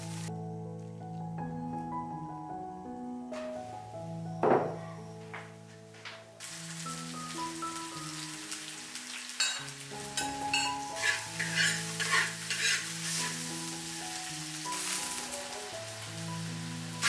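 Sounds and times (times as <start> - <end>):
food sizzling in a pan: 0.0 - 0.3, 6.4 - 17.0
spatula scraping and stirring: 10.5 - 13.6.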